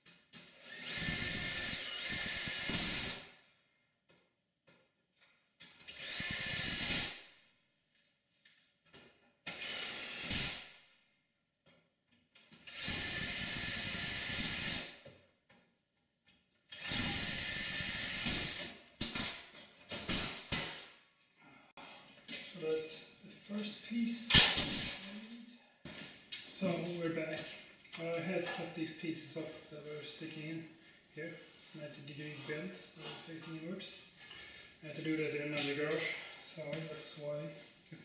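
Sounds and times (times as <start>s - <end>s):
cordless drill on sheet metal: 0.3s - 3.4s, 5.8s - 7.4s, 9.4s - 10.8s, 12.6s - 15.0s, 16.7s - 19.3s.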